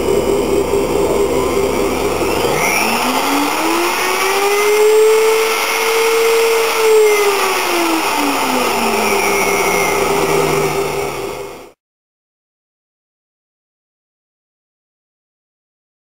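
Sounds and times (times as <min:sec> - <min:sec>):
spindle motor whining: 0:00.0 - 0:11.8.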